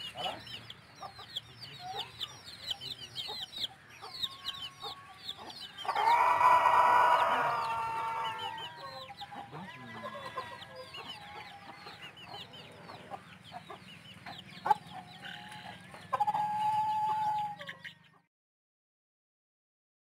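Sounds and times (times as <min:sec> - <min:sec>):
chicks peeping: 0:00.0 - 0:18.2
chickens clucking: 0:00.0 - 0:18.3
chicken long call: 0:05.9 - 0:09.0, 0:16.2 - 0:17.8.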